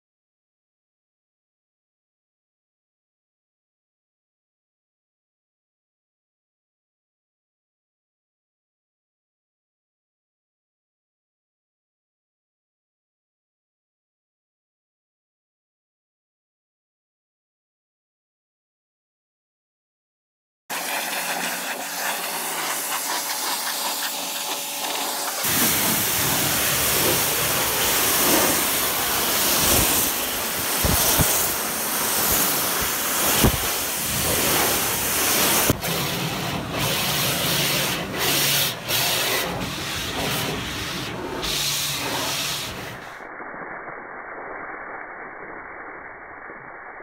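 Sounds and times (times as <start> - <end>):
pressure washer spray hissing: 20.7 - 43.3.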